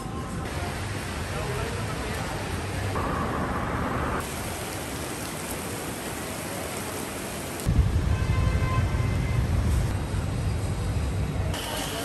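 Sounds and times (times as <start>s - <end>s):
heavy rain on pavement: 0.4s - 10.0s.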